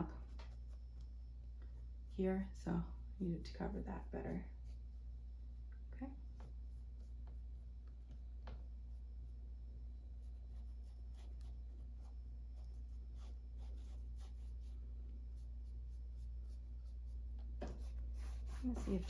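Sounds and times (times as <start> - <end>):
scratchy paintbrush strokes: 0.0 - 19.0
steady low hum: 0.0 - 19.0.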